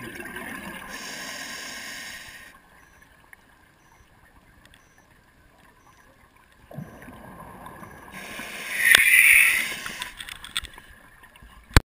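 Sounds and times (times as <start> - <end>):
scuba regulator breathing bubbles: 0.8 - 2.5, 8.0 - 10.2
sharp click: 8.8 - 10.7.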